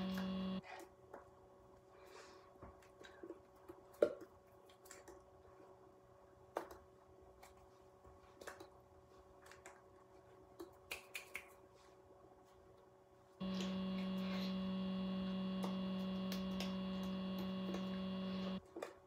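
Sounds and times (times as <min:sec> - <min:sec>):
low steady hum: 0:00.0 - 0:00.6, 0:13.4 - 0:18.6.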